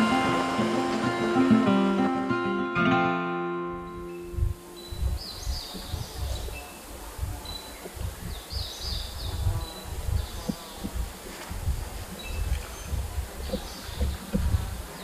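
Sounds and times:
high chirping calls: 3.7 - 11.3, 12.0 - 15.0
wind rumbling on microphone: 3.7 - 15.0.

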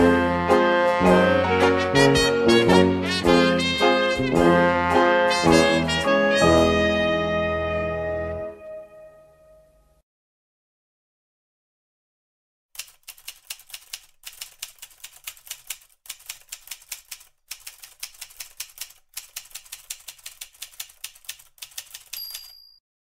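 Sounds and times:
typewriter keys clacking: 12.8 - 22.8
carriage-return bell ding: 22.1 - 22.8.

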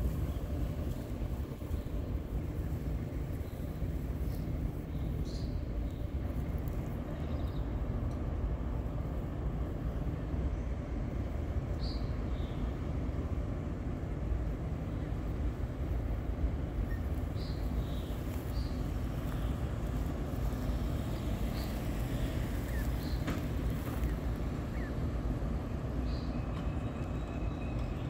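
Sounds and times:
steady low rumble: 0.0 - 27.8
goslings peeping: 24.7 - 25.0.

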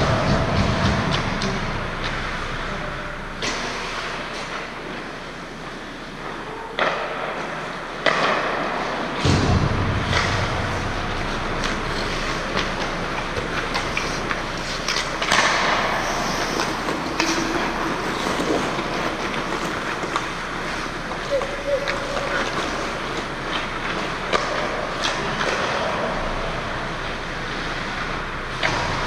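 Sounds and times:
hockey sticks and puck clacking: 0.0 - 29.0
heavy low thump: 9.2 - 11.2
skate blades scraping ice: 10.1 - 29.0.

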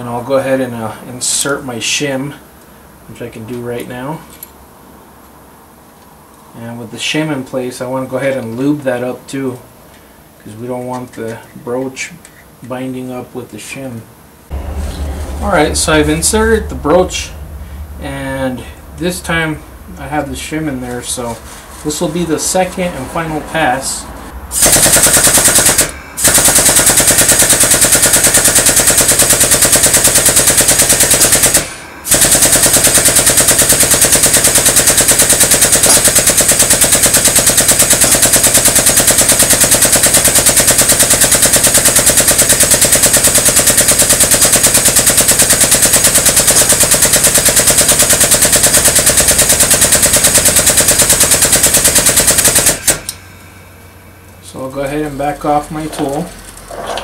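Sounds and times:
air wrench hammering: 24.6 - 44.6.

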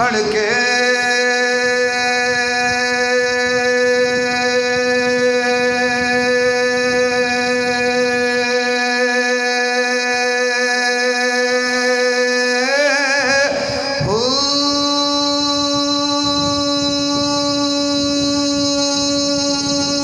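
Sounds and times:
man chanting verse: 0.0 - 20.0.

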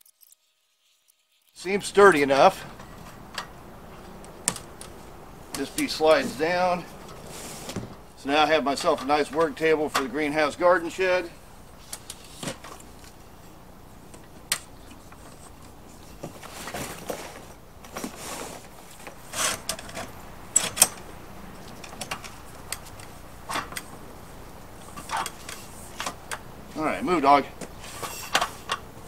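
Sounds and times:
rustling: 2.5 - 8.2, 11.6 - 20.2.

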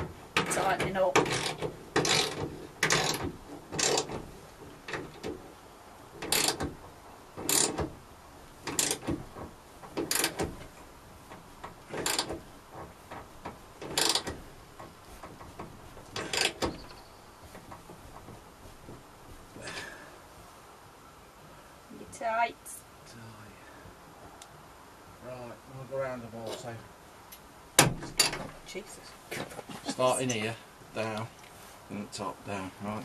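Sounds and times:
ratchet spanner clicking: 3.8 - 4.2, 6.2 - 6.7, 7.4 - 7.8, 8.7 - 9.0, 10.0 - 10.4, 11.9 - 12.4, 13.8 - 14.3, 16.2 - 16.7.

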